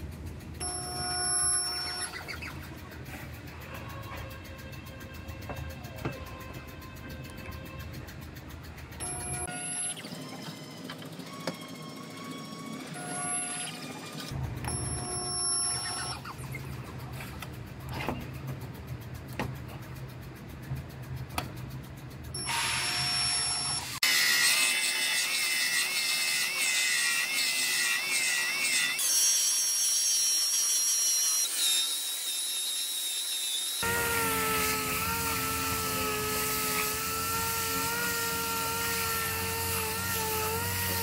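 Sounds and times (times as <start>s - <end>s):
low electrical buzz: 33.8s - 41.0s.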